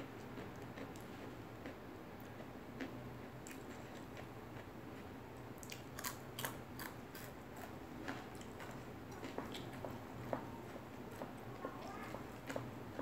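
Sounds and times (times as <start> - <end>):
crisp food being chewed: 0.2 - 10.5.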